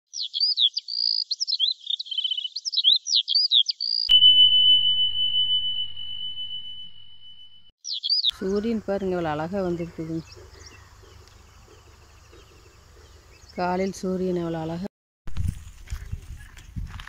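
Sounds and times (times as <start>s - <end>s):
rapid high warbling chirps: 0.4s - 8.4s
high ringing tone: 4.1s - 7.8s.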